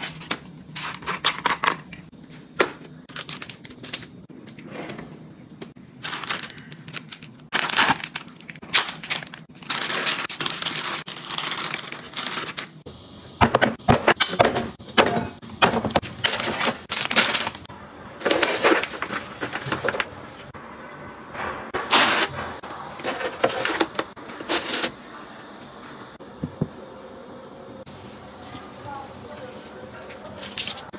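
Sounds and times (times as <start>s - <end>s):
plastic and cardboard rustling: 6.0s - 12.8s, 13.7s - 20.5s, 21.8s - 25.0s, 27.9s - 30.9s.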